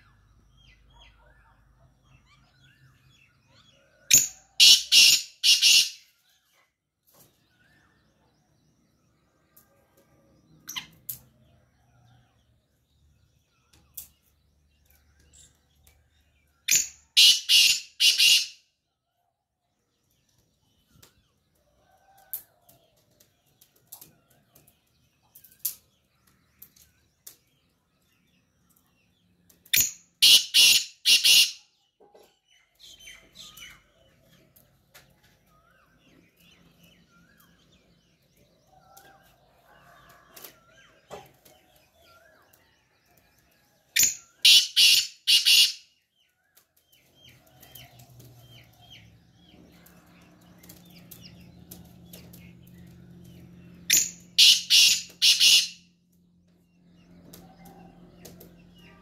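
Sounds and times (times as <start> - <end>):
small birds chirping: 0.0 - 59.0
harsh grating bird call: 4.6 - 6.1, 16.7 - 18.6, 30.2 - 31.6, 44.4 - 45.8, 53.9 - 55.8.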